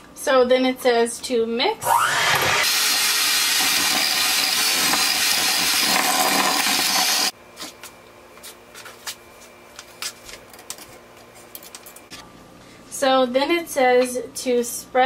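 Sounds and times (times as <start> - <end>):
electric hand mixer whirring: 1.8 - 7.3.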